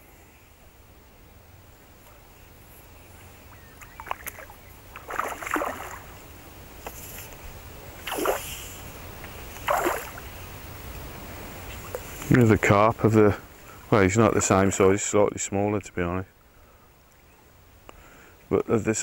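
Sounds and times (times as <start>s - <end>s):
fish splashing at water surface: 3.8s - 6.2s, 8.0s - 8.8s, 9.6s - 10.3s.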